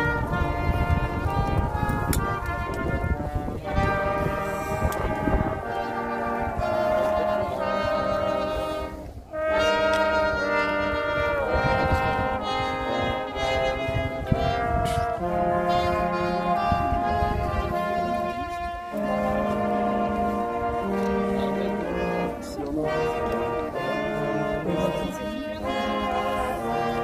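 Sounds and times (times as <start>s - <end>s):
brass band playing slow chords: 0.0s - 27.0s.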